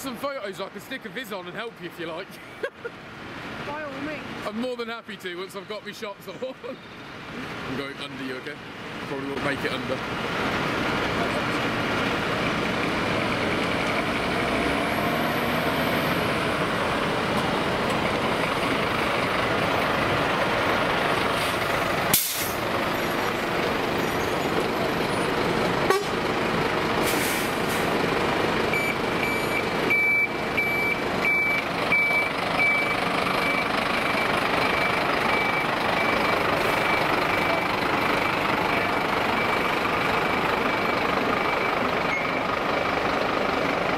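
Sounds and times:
diesel engines running: 0.0s - 43.9s
reversing alarm beeps: 28.7s - 39.8s, 40.6s - 42.5s.

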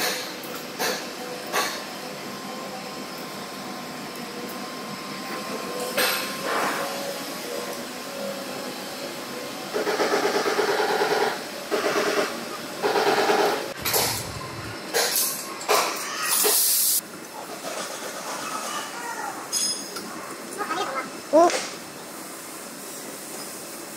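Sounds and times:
rapid mechanical rattle: 12.9s - 15.3s
steady hum: 13.8s - 15.4s.

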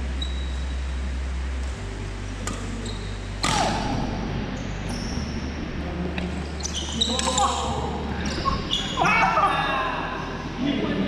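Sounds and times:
steady low hum: 0.0s - 11.0s
racket hitting shuttlecock: 2.4s - 2.8s, 3.4s - 4.1s
shoes squeaking on wooden floor: 6.6s - 9.0s.

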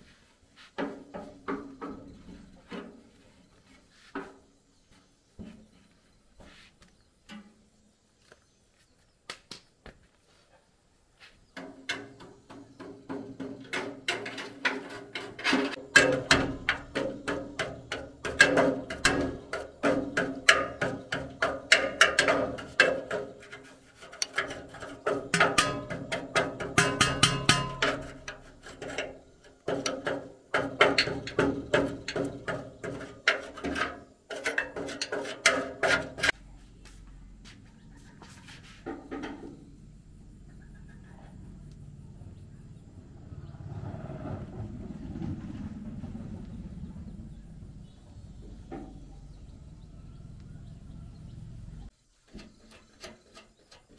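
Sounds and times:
metal tool scraping steel frame: 13.7s - 36.4s.

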